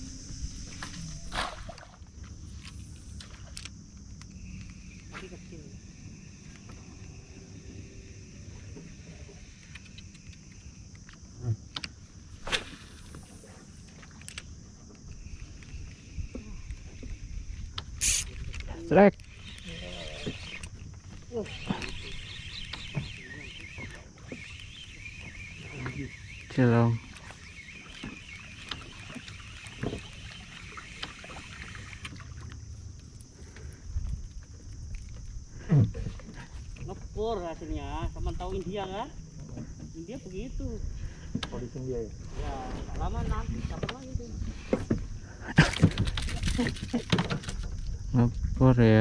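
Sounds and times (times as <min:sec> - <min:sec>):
steady high hiss: 0:00.0 - 0:11.2, 0:15.2 - 0:20.7
wind and water around boat: 0:00.0 - 0:49.0
faint high hiss: 0:18.0 - 0:18.5.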